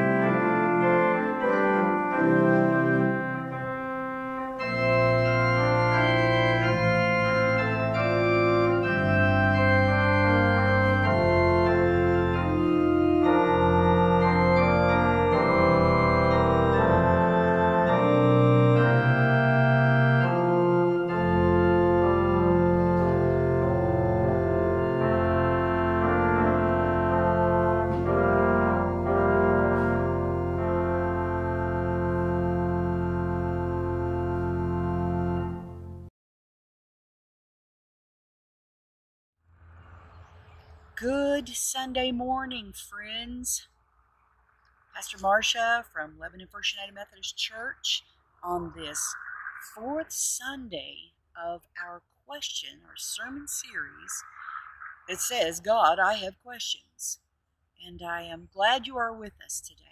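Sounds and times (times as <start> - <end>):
organ chords: 0.0 - 36.1, 44.8 - 51.0, 51.6 - 56.7.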